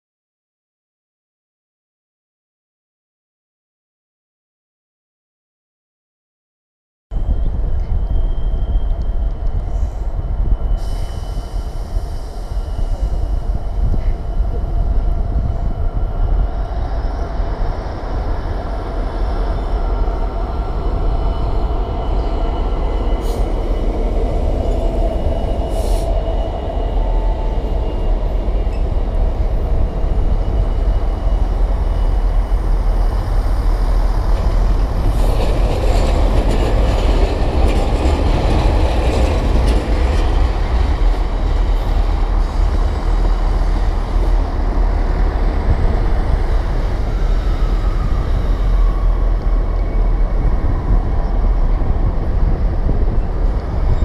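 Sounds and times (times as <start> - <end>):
high wheel squeal: 7.2 - 14.7
diesel locomotive rumbling: 7.2 - 54.0.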